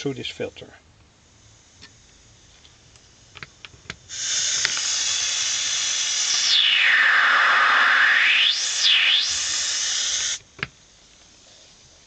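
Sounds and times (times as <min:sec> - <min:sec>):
filtered noise hiss: 0:00.0 - 0:12.0
falling whoosh: 0:06.2 - 0:10.4.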